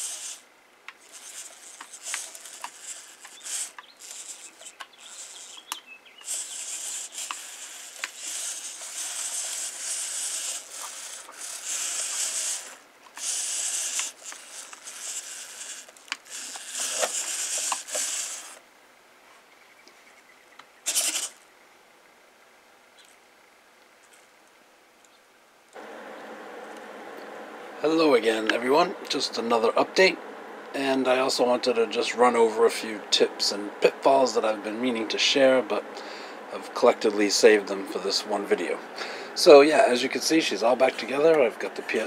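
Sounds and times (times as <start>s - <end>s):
servo motors whirring: 0.0s - 18.6s, 20.9s - 21.4s.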